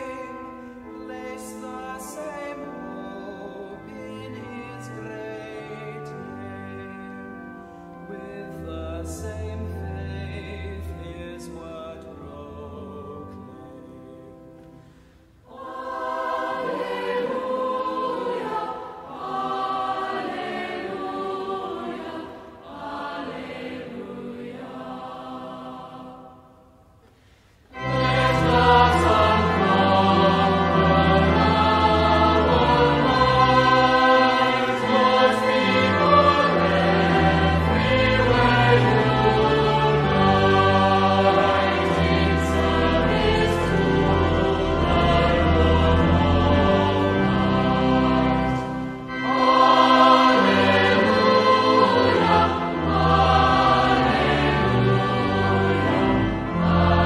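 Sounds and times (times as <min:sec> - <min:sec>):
choir singing a hymn: 0:00.0 - 0:57.0
instrumental accompaniment: 0:27.0 - 0:57.0.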